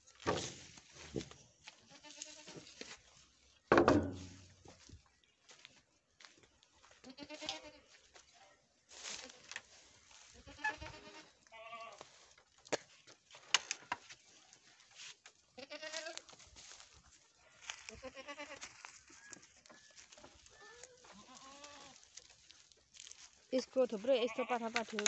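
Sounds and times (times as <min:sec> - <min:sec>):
goats bleating: 0:01.8 - 0:02.6, 0:07.0 - 0:07.9, 0:10.2 - 0:12.1, 0:15.6 - 0:16.3, 0:17.6 - 0:18.8, 0:20.5 - 0:22.1, 0:24.2 - 0:24.8.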